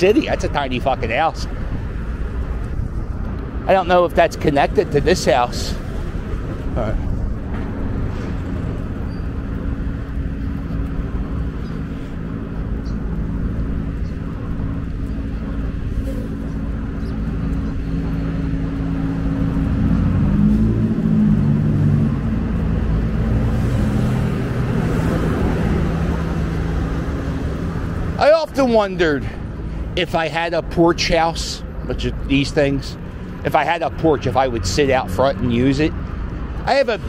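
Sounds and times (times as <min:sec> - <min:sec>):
road traffic hum: 0:00.0 - 0:37.0
vehicle engine passing: 0:00.1 - 0:28.2.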